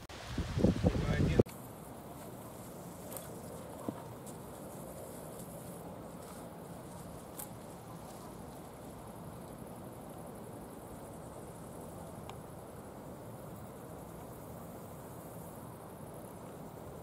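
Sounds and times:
low outdoor rush: 0.0 - 17.0
insects chirring: 1.1 - 17.0
faint ticks: 9.4 - 10.2, 12.2 - 12.5.

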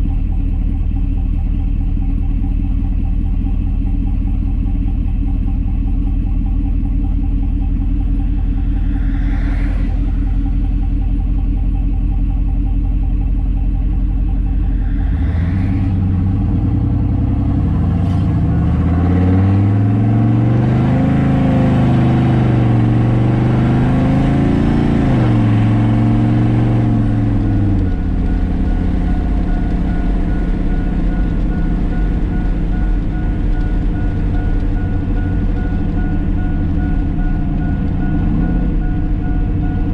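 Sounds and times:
pickup engine drone from cab: 0.0 - 39.9
repeating electronic beep: 14.3 - 39.9.

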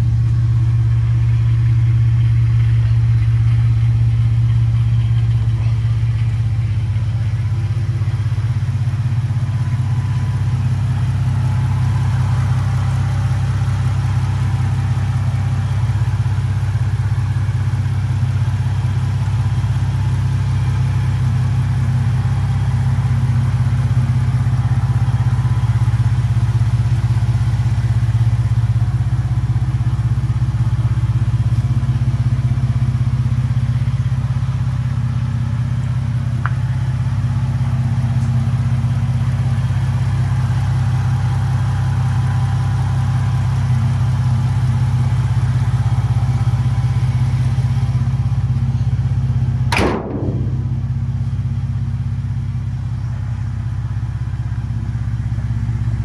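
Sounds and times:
pickup engine idling: 0.0 - 56.0
short thump: 49.7 - 51.0.

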